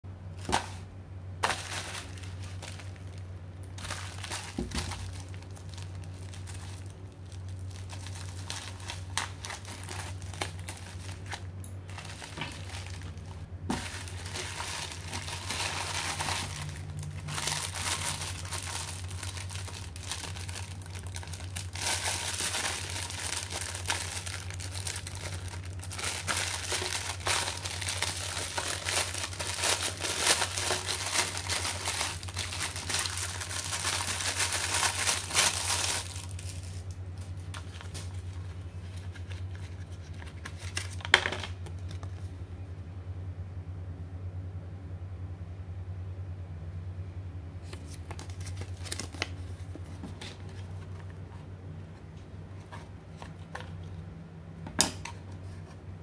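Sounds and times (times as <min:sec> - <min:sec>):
plastic film crinkling: 0:01.4 - 0:42.2, 0:47.6 - 0:51.2.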